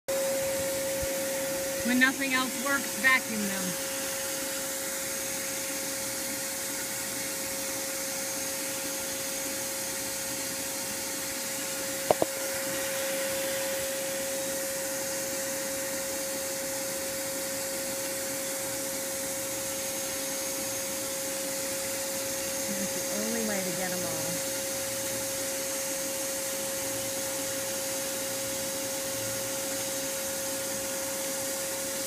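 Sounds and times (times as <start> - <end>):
vacuum motor whine and hiss: 0.1 - 32.0.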